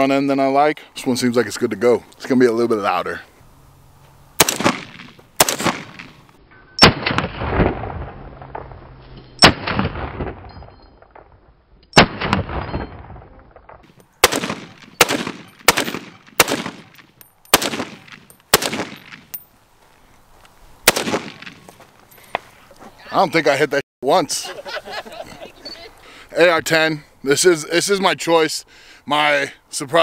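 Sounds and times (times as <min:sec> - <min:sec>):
rifle shots with rolling echo: 0:04.4 - 0:08.8, 0:09.4 - 0:19.4, 0:20.8 - 0:21.7.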